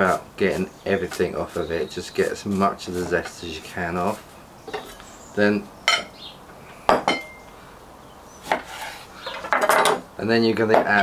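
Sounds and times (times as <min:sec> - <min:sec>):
kitchen tools clinking on wooden board: 0:09.3 - 0:10.0.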